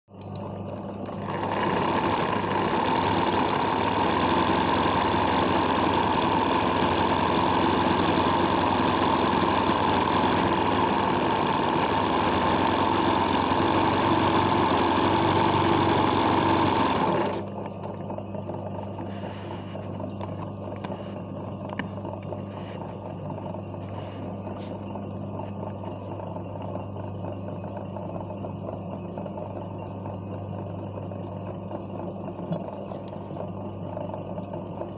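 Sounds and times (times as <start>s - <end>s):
sewing machine running fast: 0.4s - 18.6s.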